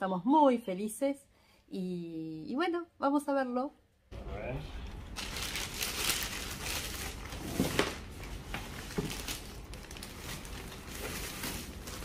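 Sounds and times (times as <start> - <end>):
plastic bag crinkling: 5.1 - 12.0.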